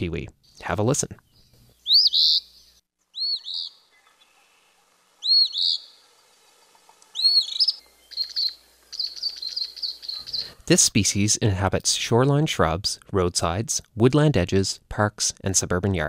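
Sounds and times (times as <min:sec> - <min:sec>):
bird singing two-part song: 0:00.4 - 0:04.4, 0:05.2 - 0:06.0, 0:07.1 - 0:10.5.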